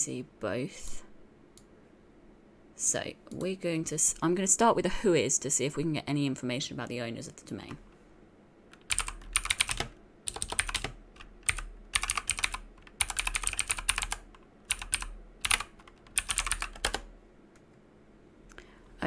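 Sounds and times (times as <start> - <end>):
typing on computer keyboard: 8.8 - 17.1.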